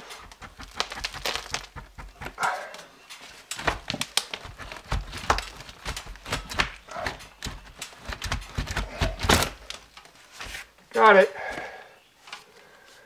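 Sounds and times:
wooden panel clicking and tapping: 3.5 - 9.8.

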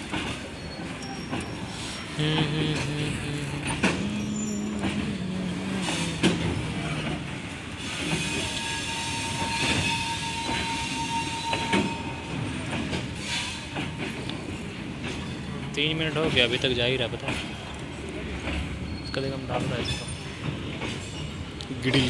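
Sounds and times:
wheels clacking over rail joints: 0.0 - 2.2, 3.5 - 22.0
freight train rumbling past: 0.0 - 22.0
wheel squeal: 0.2 - 2.2, 7.8 - 12.3, 18.6 - 20.4.

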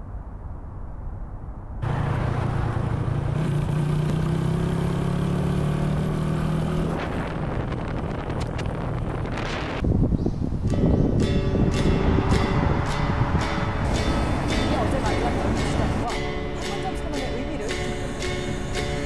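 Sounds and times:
wind rushing on microphone: 6.6 - 16.3.

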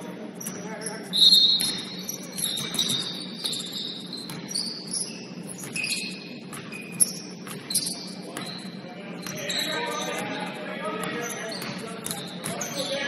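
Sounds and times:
shoes squeaking on gym floor: 0.4 - 10.4, 11.0 - 13.0
basketball bouncing: 1.6 - 4.8, 5.4 - 8.6, 11.0 - 12.9.

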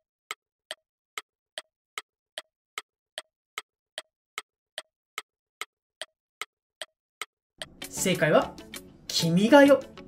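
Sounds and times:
clock ticking: 0.3 - 8.1.

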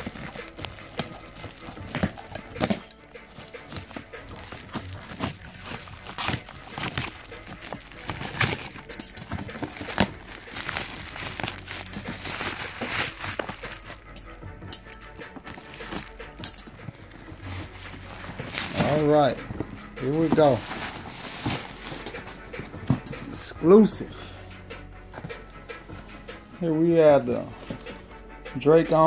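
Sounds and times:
plastic packaging crinkling: 0.0 - 14.1, 15.3 - 23.2.

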